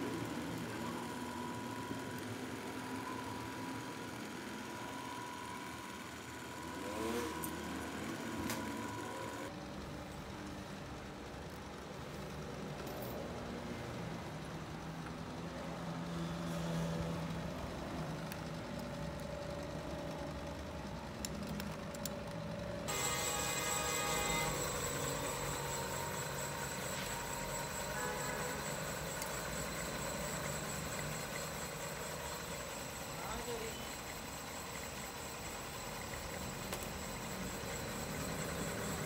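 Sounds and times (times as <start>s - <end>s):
high steady tone: 0.0s - 9.5s, 22.0s - 39.0s
low mechanical hum of machinery: 0.0s - 39.0s.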